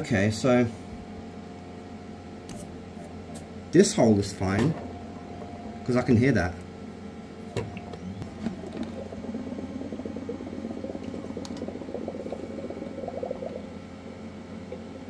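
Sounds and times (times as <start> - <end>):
steady low hum: 0.0 - 15.0
air bubbling through resin: 7.8 - 15.0.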